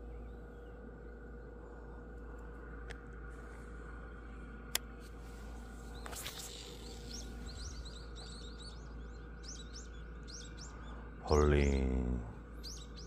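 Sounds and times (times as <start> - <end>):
low background noise: 0.0 - 13.0
small birds chirping: 0.0 - 13.0.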